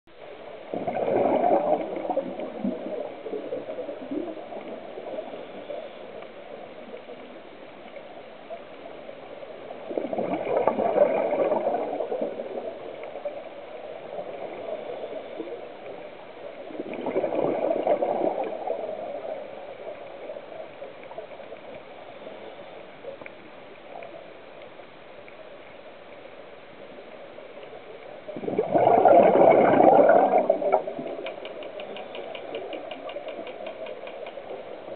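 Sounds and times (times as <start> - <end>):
underwater exhaust bubbles gurgling: 0.1 - 24.7, 27.0 - 34.9
faint hiss: 0.2 - 10.0, 11.8 - 28.8.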